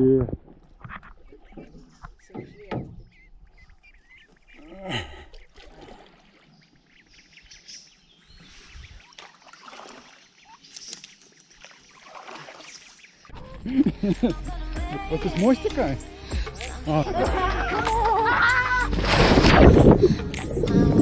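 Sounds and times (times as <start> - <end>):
ducks quacking softly: 1.2 - 7.0.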